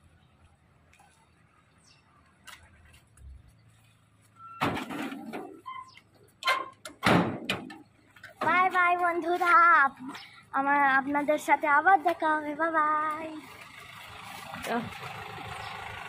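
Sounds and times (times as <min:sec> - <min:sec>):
loud metallic clanks of gate latch: 0:06.4 - 0:07.8.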